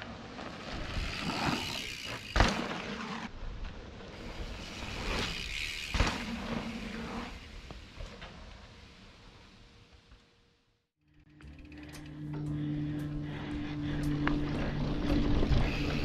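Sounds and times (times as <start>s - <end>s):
bicycle tyre and air rush: 0.0s - 16.0s
bicycle landing thump: 5.8s - 6.6s.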